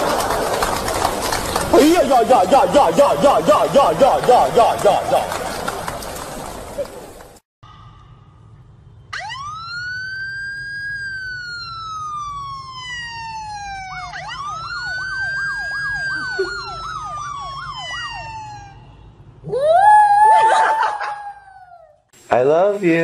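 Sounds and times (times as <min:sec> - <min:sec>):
electronic siren wailing: 0:09.1 - 0:20.6
siren fast yelp: 0:09.1 - 0:22.0.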